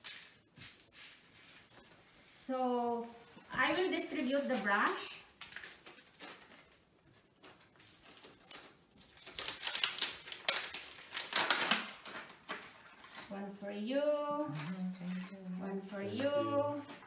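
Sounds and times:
plastic packaging crinkling: 3.8s - 13.3s.

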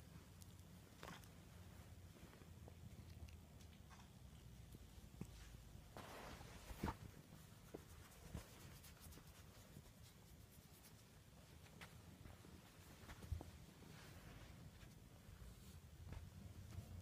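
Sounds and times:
cloth rustling: 5.3s - 8.6s.

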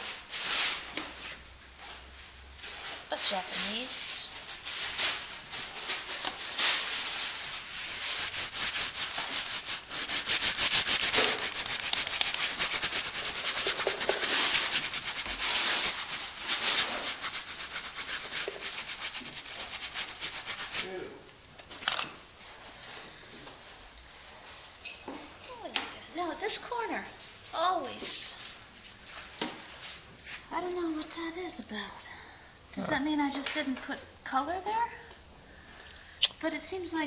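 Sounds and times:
scratchy rubbing on woodblock and paper: 7.9s - 20.9s.

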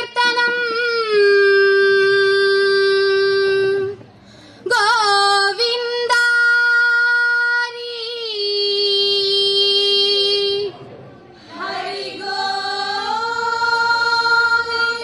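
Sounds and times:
girls singing: 11.5s - 15.0s.

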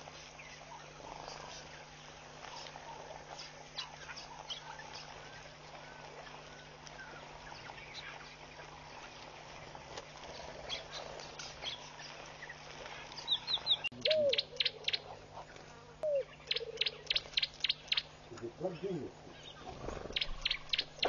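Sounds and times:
steady low hum: 0.0s - 21.0s
bird chirps and calls: 13.2s - 15.1s, 16.0s - 18.1s, 18.7s - 21.0s.

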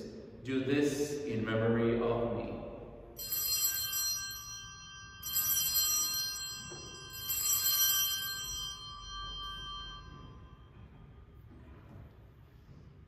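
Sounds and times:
altar bells ringing: 3.2s - 11.5s.

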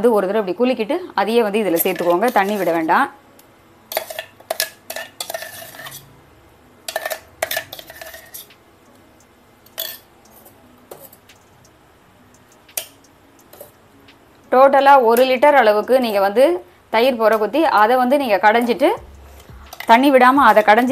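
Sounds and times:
utensils scraping metal jar: 3.9s - 6.1s, 6.9s - 8.5s.

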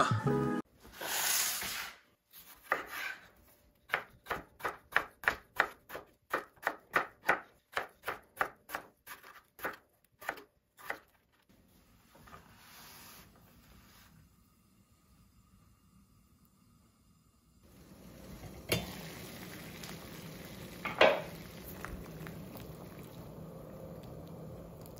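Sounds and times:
brushing of slices handled: 0.8s - 3.4s, 12.0s - 14.2s
knife chopping potato on board: 2.6s - 3.2s, 3.9s - 11.2s.

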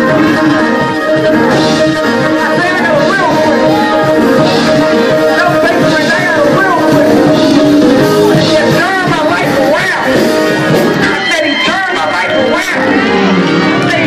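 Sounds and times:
person singing: 0.0s - 10.1s
drums: 0.0s - 14.0s
keyboard chords: 0.0s - 14.0s.

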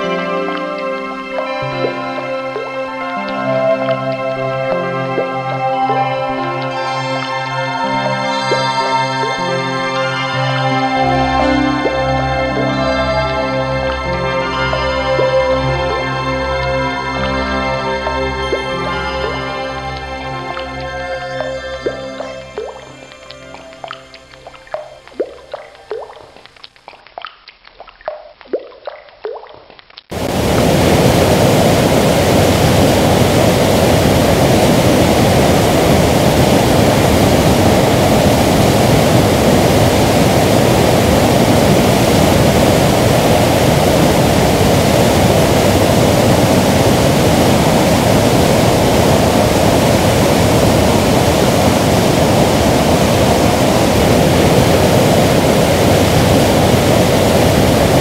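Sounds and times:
water dripping: 0.0s - 58.0s
whitewater roaring over rocks: 30.1s - 58.0s.

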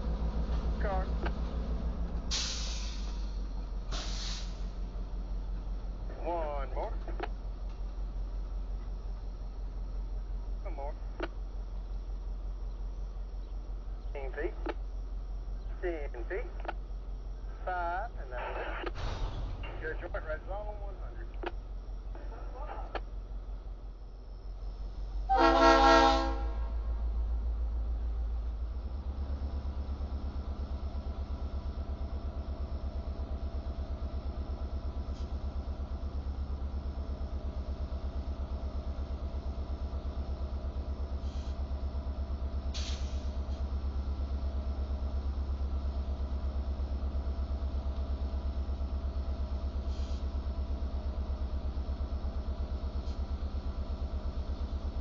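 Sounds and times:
diesel engine low throb: 0.0s - 55.0s
locomotive horn blast: 25.3s - 26.8s.

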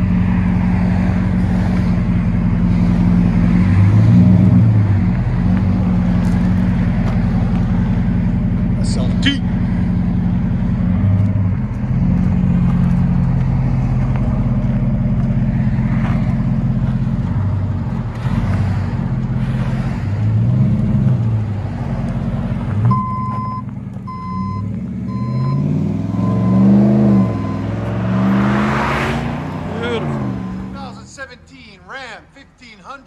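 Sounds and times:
truck engine idling and revving: 0.0s - 33.0s
evenly spaced beeps: 22.9s - 28.8s, 29.4s - 31.3s.

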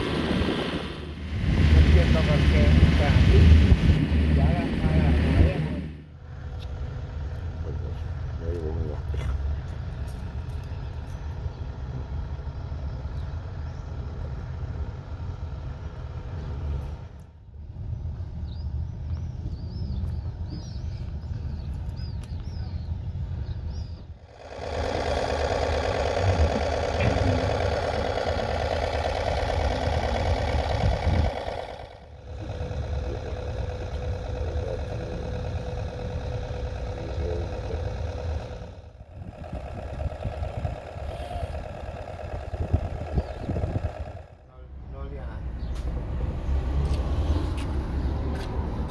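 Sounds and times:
boat engine idling: 24.1s - 44.6s.

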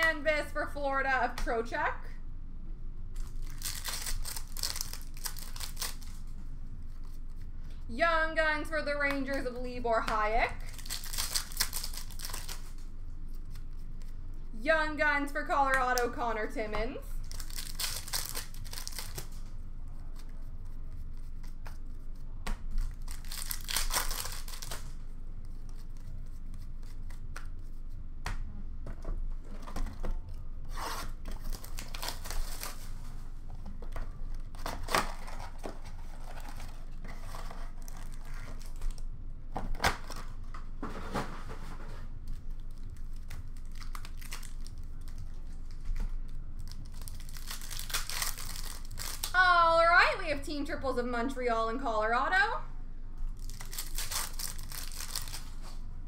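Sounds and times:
card wrappers tearing and crinkling: 3.2s - 6.3s, 10.6s - 14.1s, 17.2s - 19.4s, 22.7s - 27.3s, 30.7s - 33.1s, 34.3s - 39.0s, 42.3s - 49.4s, 53.4s - 55.8s.

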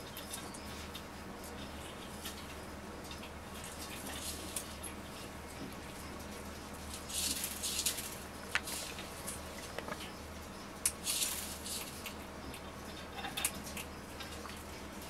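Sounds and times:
lizard crunching seeds: 3.1s - 5.1s, 6.8s - 10.2s, 10.8s - 14.6s.

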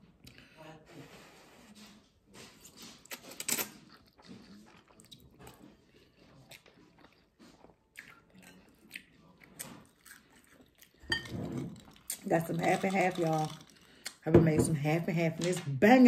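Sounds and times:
chewing with wet mouth smacks: 3.0s - 11.0s.

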